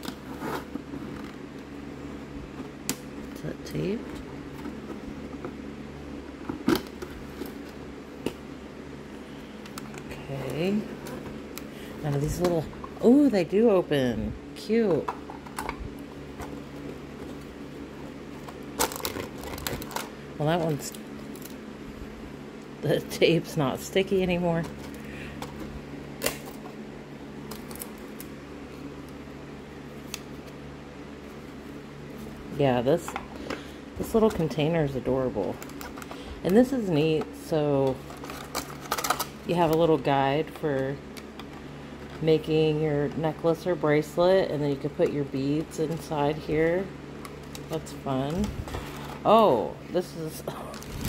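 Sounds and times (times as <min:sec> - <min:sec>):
steady low hum: 0:00.0 - 0:51.0.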